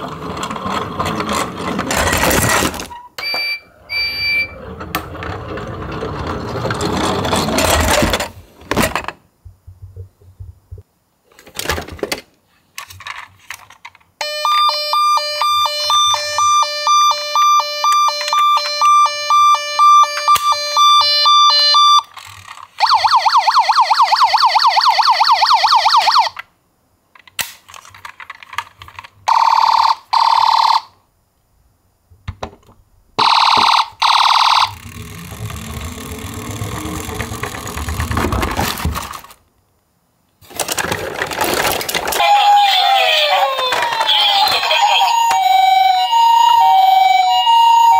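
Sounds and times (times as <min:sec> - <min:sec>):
toy ambulance sirens: 0:14.2 - 0:22.1, 0:22.8 - 0:26.4, 0:29.3 - 0:30.9, 0:33.2 - 0:37.8, 0:41.5 - 0:47.9.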